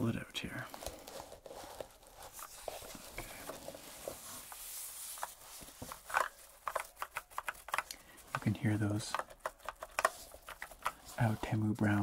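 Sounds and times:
foam bag rustling: 0.7s - 5.8s.

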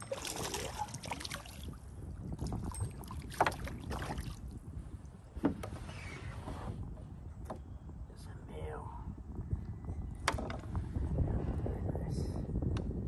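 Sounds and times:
water splashing around kayak: 0.0s - 4.6s.

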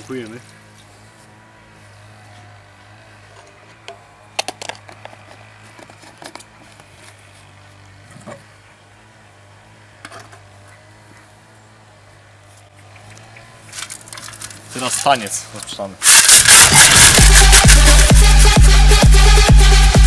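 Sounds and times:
fuel cap clicks and taps: 3.8s - 6.4s.

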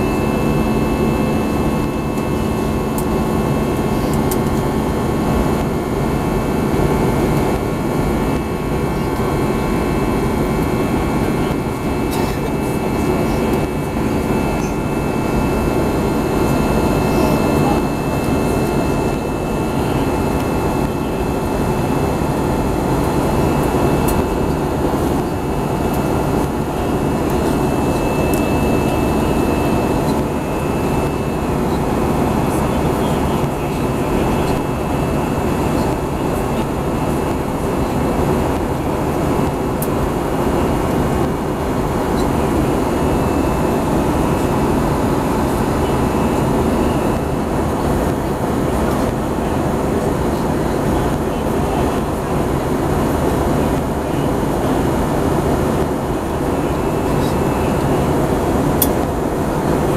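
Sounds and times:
faint steady whining tones: 0.0s - 59.9s
jet engines humming: 0.0s - 59.9s.

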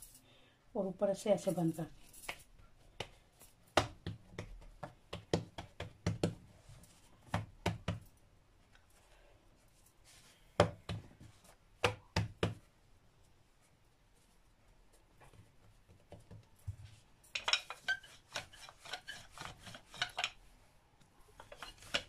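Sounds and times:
hands patting dough on wood: 2.3s - 8.1s, 10.5s - 12.7s, 15.1s - 17.1s.

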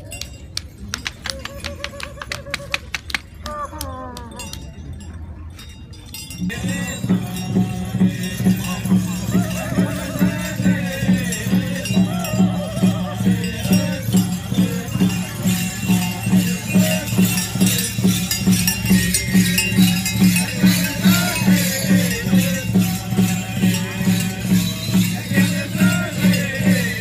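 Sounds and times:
bells jingling: 0.0s - 27.0s
steady drumbeat: 6.4s - 27.0s
men chanting: 6.5s - 27.0s.

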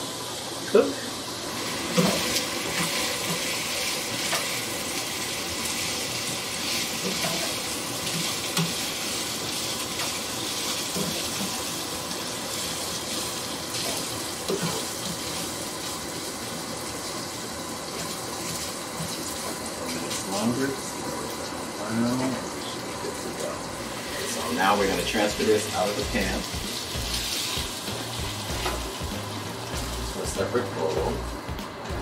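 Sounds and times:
sausage sizzling in a frying pan: 0.0s - 31.5s.

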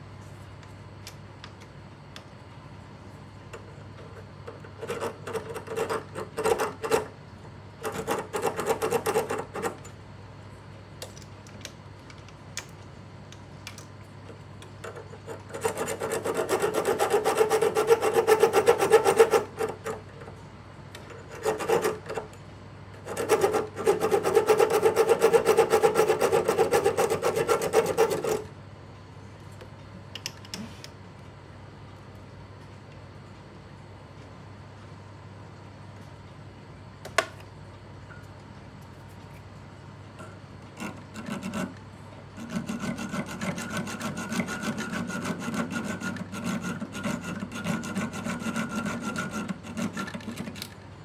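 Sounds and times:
file rasping on metal rod: 14.9s - 20.0s, 21.2s - 22.3s, 23.0s - 28.5s, 40.8s - 41.8s, 42.4s - 50.3s.

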